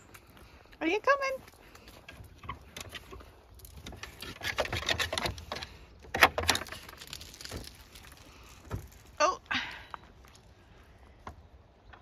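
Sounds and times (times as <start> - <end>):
footsteps on gravel: 0.0 - 3.8
wooden gate opening: 3.8 - 6.9.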